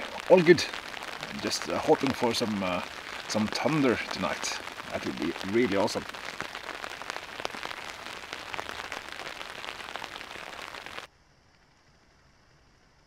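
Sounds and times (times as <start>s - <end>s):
rain hiss: 0.0s - 11.1s
raindrops ticking: 0.0s - 11.1s.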